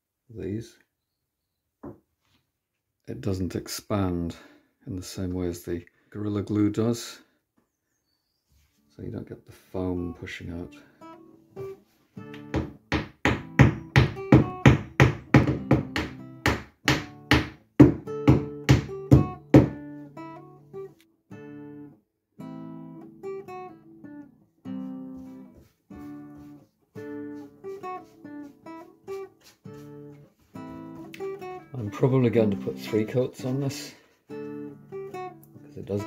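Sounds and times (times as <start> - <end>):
acoustic guitar music: 8.9 - 36.0
hammer tapping wooden dowels: 12.3 - 19.8.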